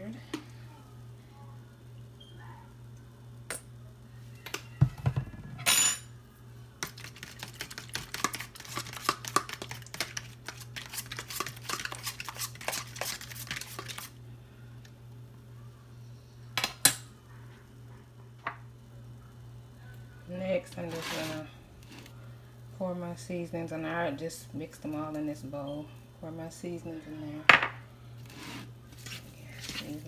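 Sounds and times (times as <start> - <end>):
fork whisking in plastic container: 6.8 - 14.1.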